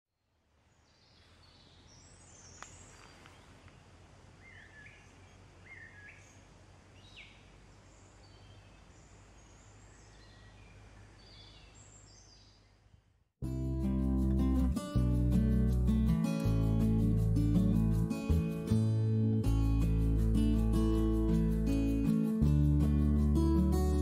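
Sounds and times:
small birds chirping: 0.6s - 13.1s.

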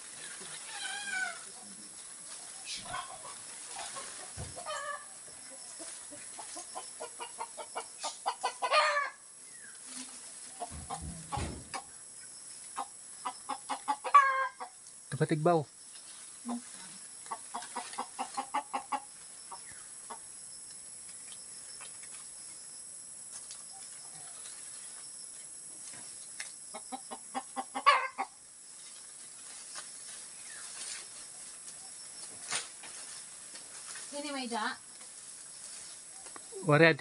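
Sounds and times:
chicken clucking: 2.7s - 9.1s, 12.8s - 14.8s, 17.3s - 20.3s, 26.7s - 28.4s.

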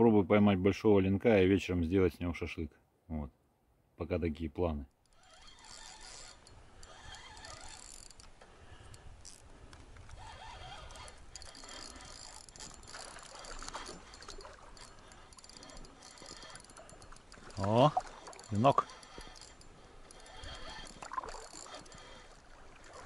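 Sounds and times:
fishing reel ticking and whirring: 5.0s - 23.0s
water lapping against boat hull: 5.0s - 23.0s.

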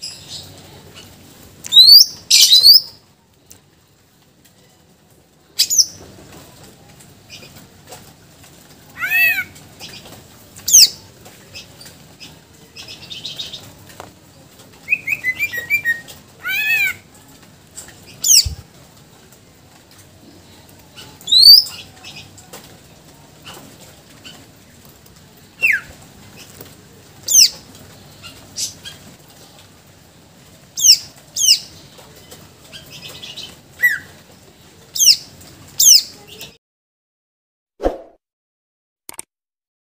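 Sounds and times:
bird singing whistled phrases: 1.7s - 2.9s, 21.3s - 21.7s.

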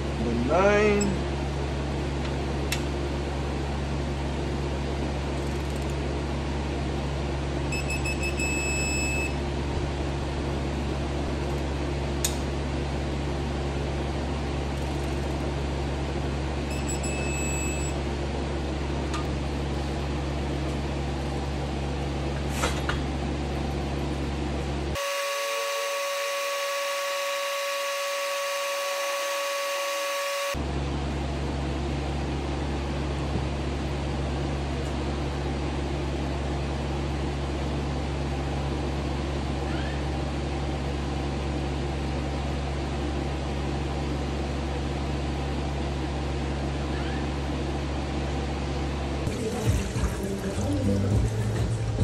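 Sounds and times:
steady electrical hum: 0.0s - 39.6s
higher steady tone: 25.0s - 30.6s.

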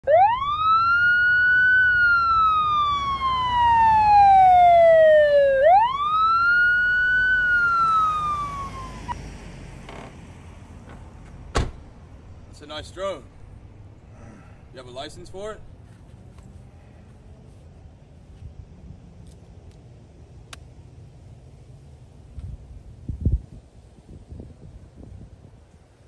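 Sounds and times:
emergency siren wailing: 0.0s - 9.2s.

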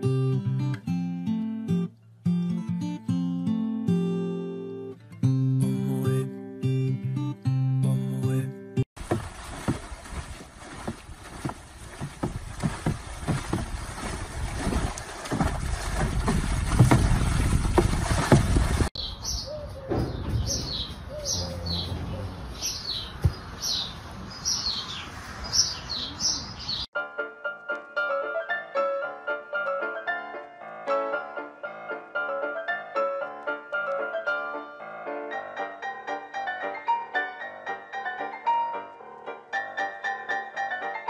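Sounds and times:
water splashing in a tub: 9.0s - 19.0s
small birds chirping: 19.0s - 26.9s.

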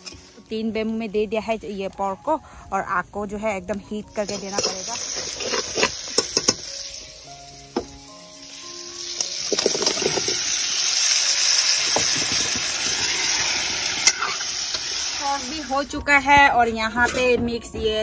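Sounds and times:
oil sizzling in a pan: 0.0s - 1.1s, 4.1s - 16.0s
spatula scraping a pan: 4.2s - 6.6s, 12.8s - 14.8s.

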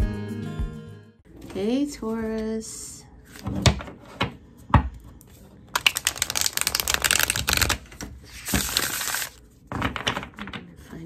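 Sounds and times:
cards riffle shuffled: 5.8s - 9.4s.

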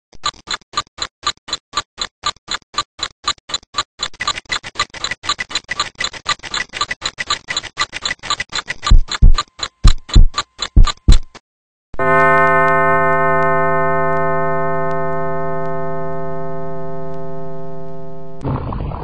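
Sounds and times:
clock ticking: 0.1s - 11.4s, 12.0s - 18.4s.

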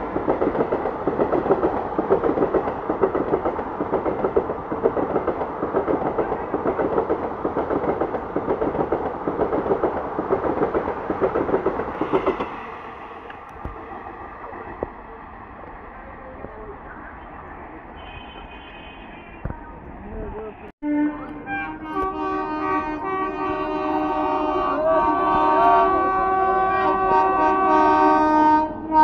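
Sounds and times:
train wheels clattering over rail joints: 0.0s - 12.7s.

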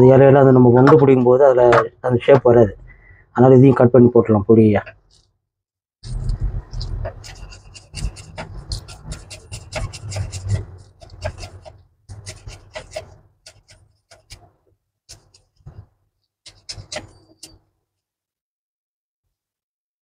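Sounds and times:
knife chopping on wooden board: 7.0s - 15.8s, 16.5s - 17.4s.

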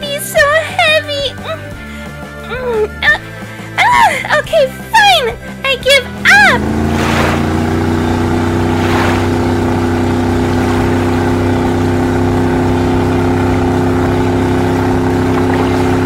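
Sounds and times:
motorboat engine running: 5.4s - 16.0s.

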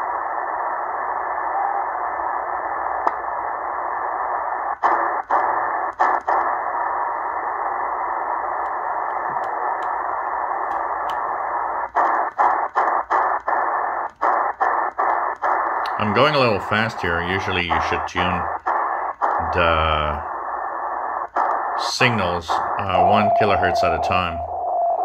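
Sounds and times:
shortwave radio hiss: 0.0s - 25.0s
tuning clicks: 8.6s - 11.3s.

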